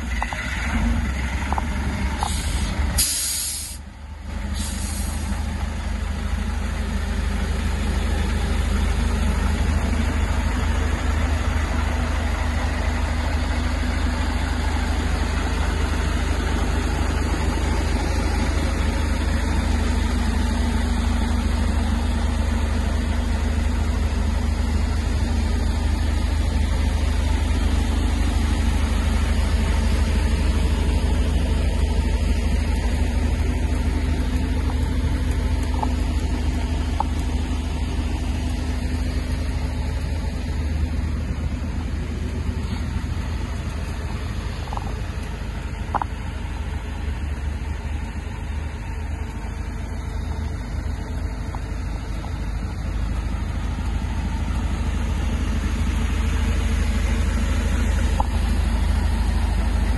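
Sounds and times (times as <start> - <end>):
diesel engine idling: 0.0 - 59.9
short bursts of hissing: 2.3 - 3.8, 4.6 - 5.3.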